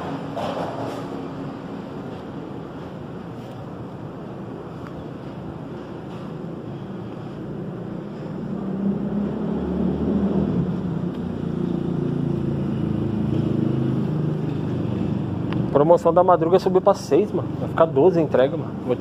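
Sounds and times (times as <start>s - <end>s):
vehicle engine running: 3.8s - 19.0s.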